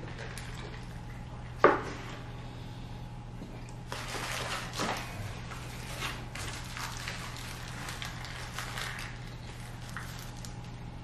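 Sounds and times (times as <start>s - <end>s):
paper wrapper crinkling: 3.9s - 10.8s.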